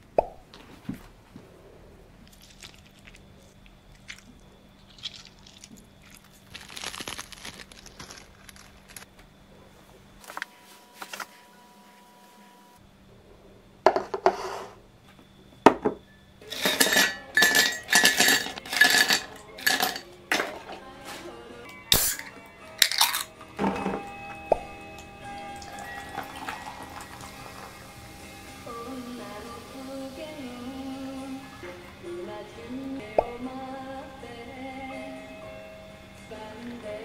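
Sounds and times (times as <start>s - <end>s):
ice cubes clinking into glass: 16.4s - 20.7s, 21.9s - 24.2s, 25.0s - 27.7s.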